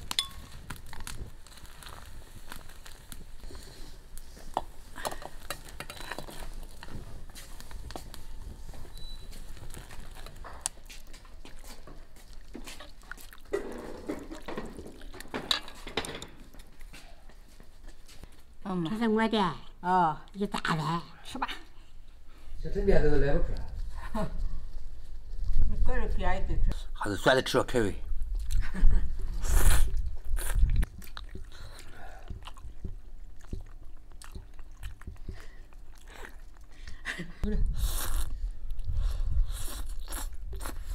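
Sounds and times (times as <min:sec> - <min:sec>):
chewing: 0:00.3 - 0:17.3, 0:29.4 - 0:37.1, 0:37.8 - 0:40.9
person slurping noodles: 0:29.4 - 0:30.8, 0:37.7 - 0:40.9.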